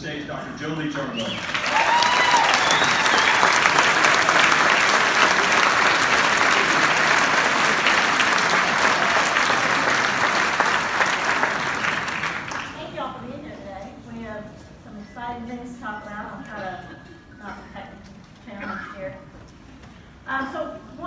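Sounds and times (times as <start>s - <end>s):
audience applauding: 0.9s - 12.9s.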